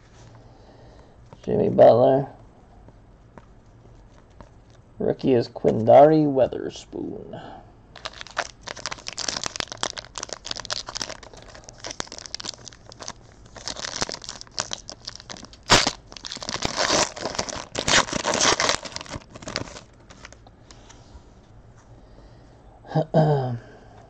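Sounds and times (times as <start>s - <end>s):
foil wrapper crinkling and tearing: 8.0s - 20.4s.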